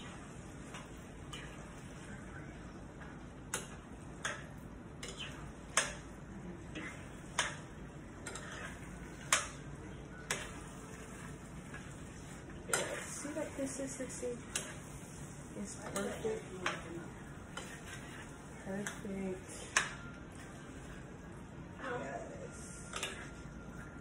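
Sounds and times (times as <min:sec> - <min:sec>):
spoon stirring thick filling: 0:03.6 - 0:21.4.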